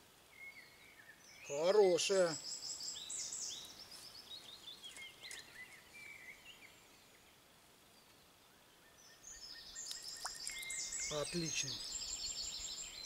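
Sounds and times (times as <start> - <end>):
faint bird chirps: 0.3 - 13.0.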